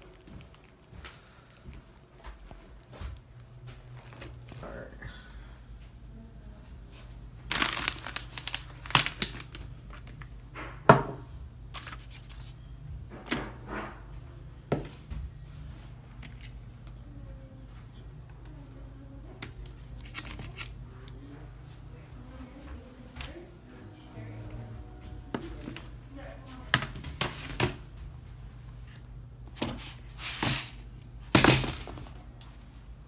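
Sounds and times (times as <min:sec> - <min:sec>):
low steady hum: 0:00.0 - 0:33.0
plastic pouch crinkling: 0:07.5 - 0:10.3, 0:19.5 - 0:20.9
items knocking on countertop: 0:10.7 - 0:11.3.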